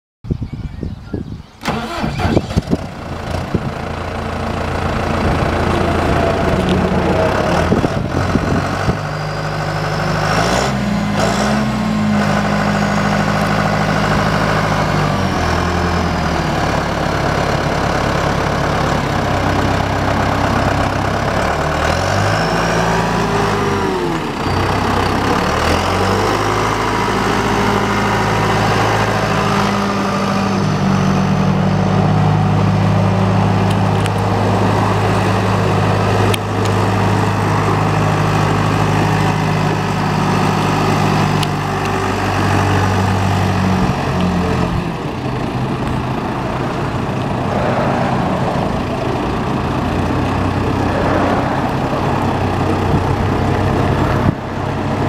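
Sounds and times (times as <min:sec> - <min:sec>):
tractor diesel engine idling: 0:01.6 - 0:55.0.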